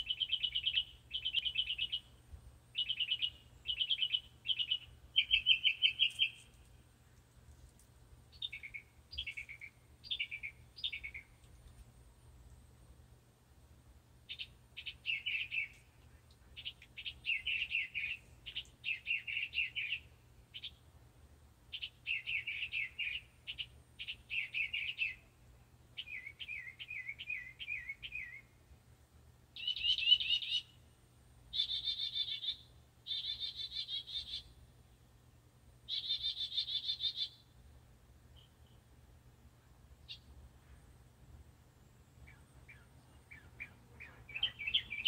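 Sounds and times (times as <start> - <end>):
mockingbird singing: 0.0 - 2.1, 2.7 - 6.5, 8.3 - 11.4, 14.3 - 15.9, 16.6 - 20.8, 21.7 - 25.3, 26.0 - 28.5, 29.6 - 30.8, 31.5 - 34.6, 35.9 - 37.4, 42.2 - 45.0.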